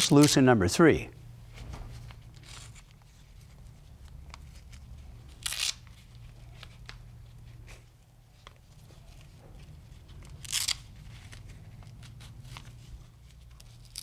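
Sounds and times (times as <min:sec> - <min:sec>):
hook-and-loop strap ripping open: 0:04.4 - 0:06.0, 0:10.2 - 0:12.6, 0:13.5 - 0:14.0.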